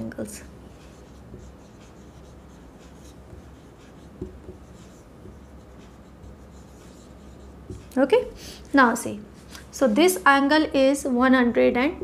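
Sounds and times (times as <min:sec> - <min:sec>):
marker writing on whiteboard: 0:00.4 - 0:08.9.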